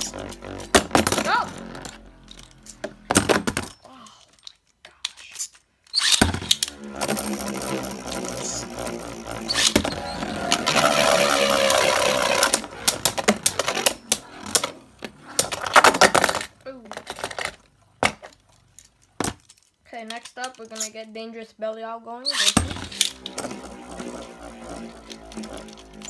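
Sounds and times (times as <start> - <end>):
spinning tops grinding rattle: 6.3 - 16.4, 22.4 - 26.0.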